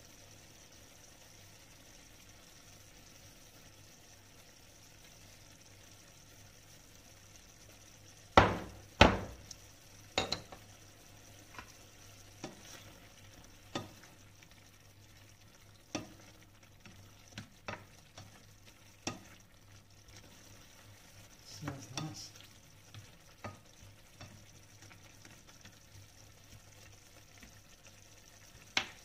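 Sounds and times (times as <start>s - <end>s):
sauce simmering: 0.0s - 29.0s
spatula knocking and scraping pan: 8.4s - 9.4s, 13.7s - 14.1s.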